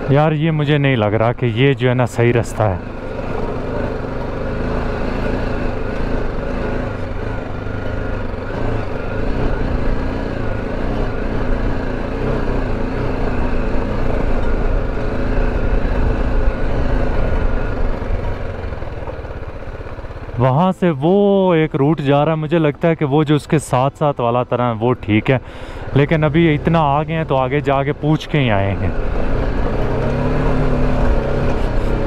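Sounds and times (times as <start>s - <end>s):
motorcycle engine running: 0.0s - 32.0s.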